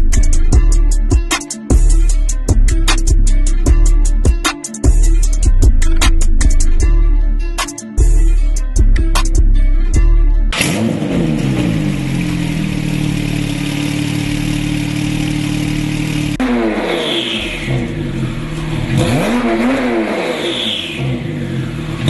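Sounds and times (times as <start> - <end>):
sports car engine revving: 10.5 - 22.0.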